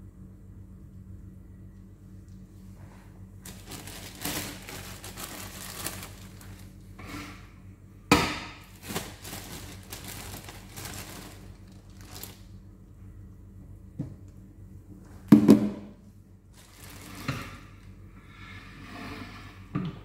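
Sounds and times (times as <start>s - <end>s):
low steady hum: 0.0s - 20.0s
plastic bag crinkling: 3.4s - 6.9s, 8.6s - 12.6s, 16.5s - 17.7s.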